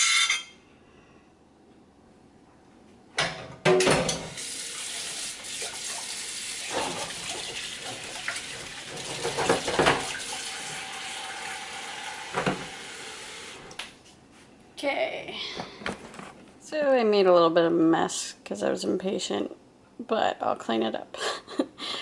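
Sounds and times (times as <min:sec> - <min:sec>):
dishes knocking and clattering: 0:03.2 - 0:04.4, 0:06.7 - 0:10.2
tap running into sink: 0:12.3 - 0:12.8.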